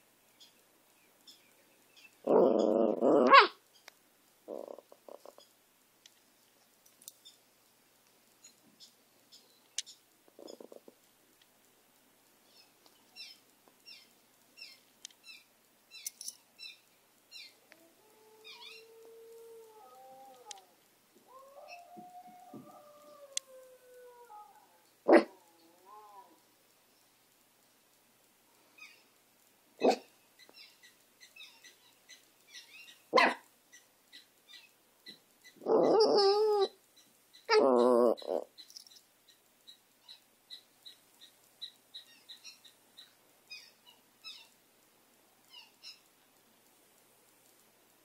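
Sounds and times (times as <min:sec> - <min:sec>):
small dog barking: 0:02.3 - 0:03.6, 0:25.0 - 0:25.4, 0:29.8 - 0:30.1, 0:33.1 - 0:33.5
dog howling: 0:17.7 - 0:26.4, 0:35.6 - 0:36.8, 0:37.5 - 0:38.5.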